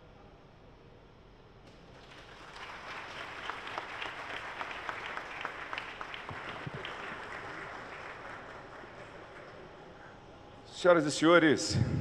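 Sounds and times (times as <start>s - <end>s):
audience applauding: 1.9s - 10.1s.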